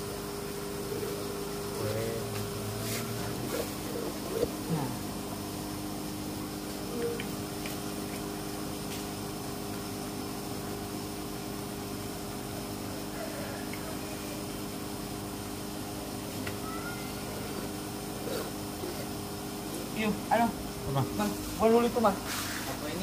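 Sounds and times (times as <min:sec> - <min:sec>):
motor humming: 0:00.0 - 0:08.6.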